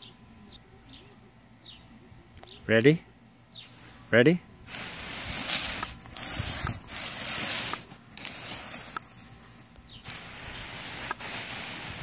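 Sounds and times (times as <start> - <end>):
garden hose spraying water: 3.6 - 12.0.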